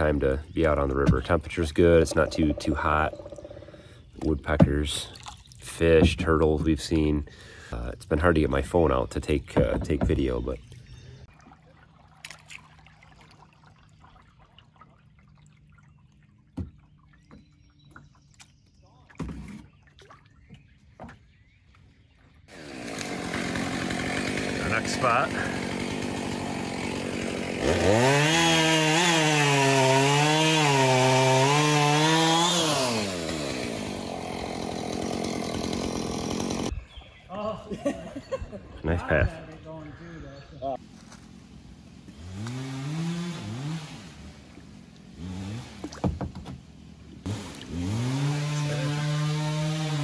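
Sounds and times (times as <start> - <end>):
faint water trickling and dripping: 11.3 - 19.2
chainsaw idling: 22.5 - 36.7, 47.3 - 50.0
chainsaw cutting wood: 22.5 - 36.8, 41.3 - 46.6, 47.2 - 50.0.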